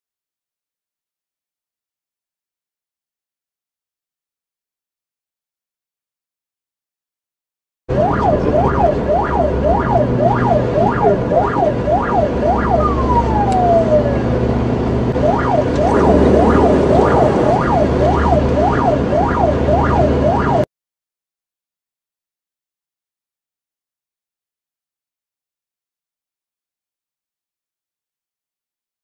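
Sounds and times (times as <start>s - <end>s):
car engine drone: 7.9s - 20.7s
police siren yelping: 7.9s - 20.7s
road noise: 7.9s - 20.7s.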